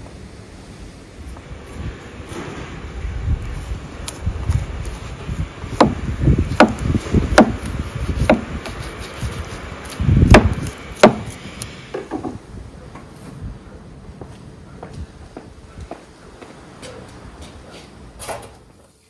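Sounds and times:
heavy dull thuds: 0:05.7 - 0:08.7, 0:10.2 - 0:11.4
knife chopping meat on wood: 0:05.8 - 0:06.0, 0:06.6 - 0:08.8, 0:10.3 - 0:11.4.

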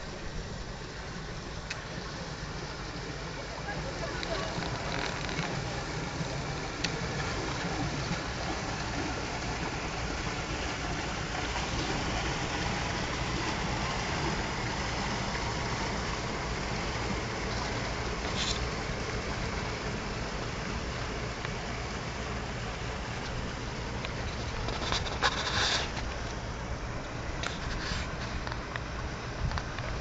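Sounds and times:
boat engine rumble: 0:00.0 - 0:30.0
water churning: 0:00.0 - 0:30.0
brief hiss: 0:24.3 - 0:26.4.

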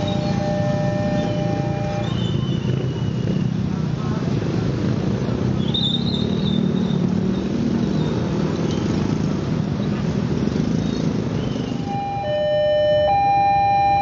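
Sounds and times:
two-pitch electronic warning tone: 0:00.0 - 0:02.2, 0:11.8 - 0:14.0.

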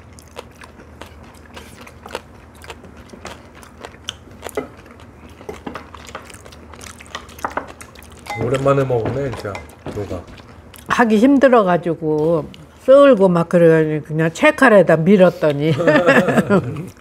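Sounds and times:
people chewing: 0:00.0 - 0:13.4, 0:15.3 - 0:17.0
chopsticks and spoons tapping bowls: 0:07.4 - 0:10.3.

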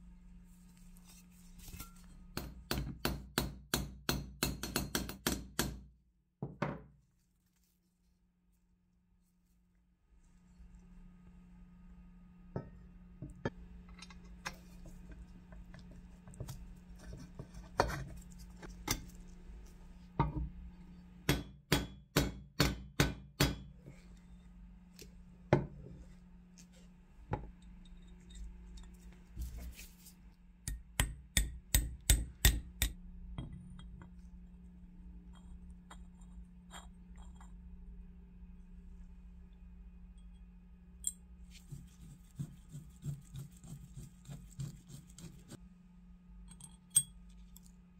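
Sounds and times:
faint steady hum: 0:00.0 - 0:03.2, 0:06.6 - 0:47.9
metal taps and clinks: 0:46.5 - 0:47.2.

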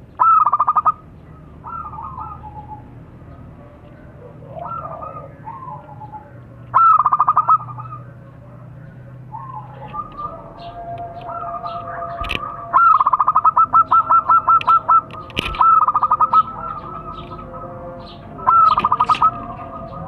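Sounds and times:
doves cooing: 0:00.0 - 0:20.0
small birds chirping: 0:00.0 - 0:20.0
sharp clicks: 0:14.6 - 0:15.7.

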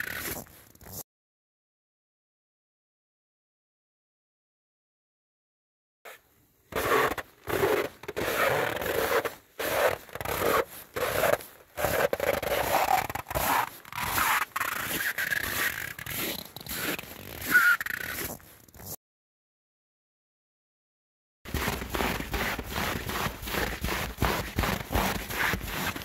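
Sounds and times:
boots crunching on snow: 0:06.8 - 0:18.4, 0:21.5 - 0:26.0.

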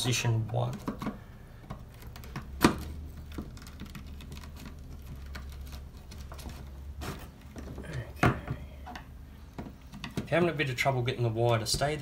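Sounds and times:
pliers and wire clicking on plastic: 0:00.0 - 0:06.8.

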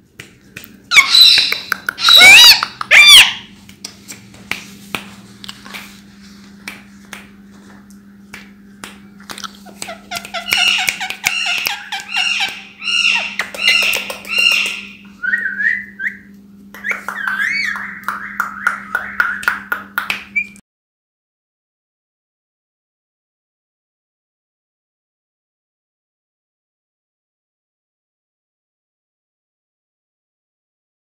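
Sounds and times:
steady low hum: 0:00.0 - 0:20.6
parrots clicking: 0:00.9 - 0:03.4, 0:09.3 - 0:15.0, 0:16.8 - 0:20.5
parrots chirping: 0:00.9 - 0:03.5, 0:09.7 - 0:16.2, 0:16.8 - 0:19.5, 0:20.4 - 0:20.6
parrots whistling: 0:00.9 - 0:03.5, 0:09.9 - 0:19.7, 0:20.4 - 0:20.6.

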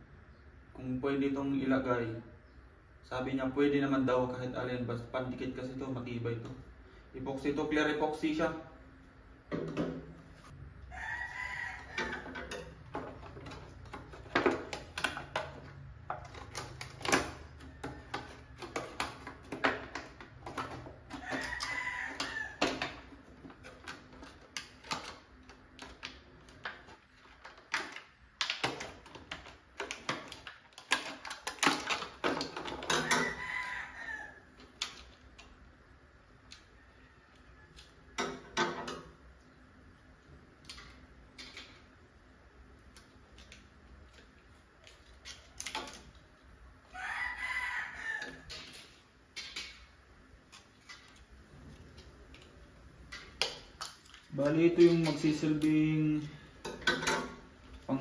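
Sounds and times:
plastic crackling: 0:12.0 - 0:33.3, 0:48.3 - 0:58.0.

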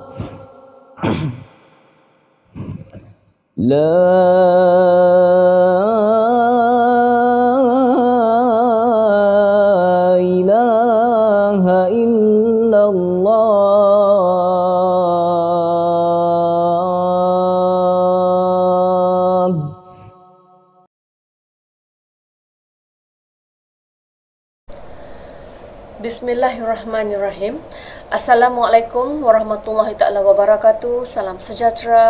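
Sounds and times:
boy chanting: 0:00.0 - 0:01.5, 0:03.6 - 0:19.9.

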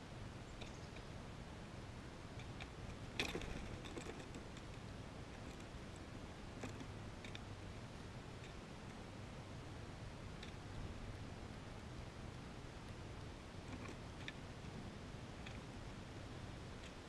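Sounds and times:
steady low hiss: 0:00.0 - 0:17.0.

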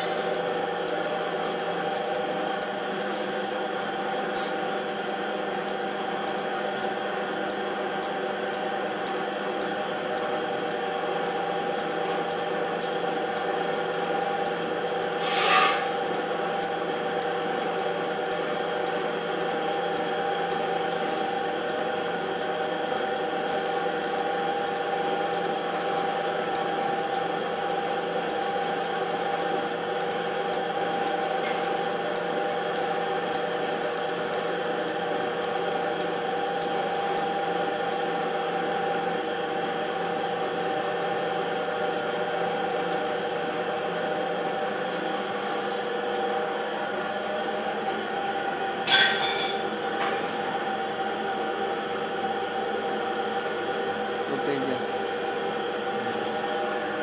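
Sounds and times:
welding machine electric hum: 0:00.0 - 0:57.0
welding hiss: 0:04.4 - 0:04.6.

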